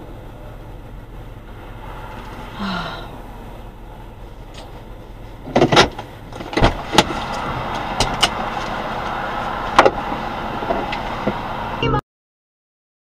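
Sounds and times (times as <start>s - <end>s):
car and traffic noise: 0.0s - 12.0s
sharp knocks and clicks in car: 5.4s - 11.5s.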